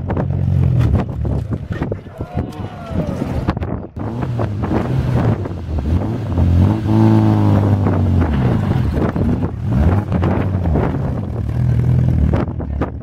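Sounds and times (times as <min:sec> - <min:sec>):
wind buffeting microphone: 0:00.0 - 0:13.0
sports car engine revving: 0:04.0 - 0:13.0.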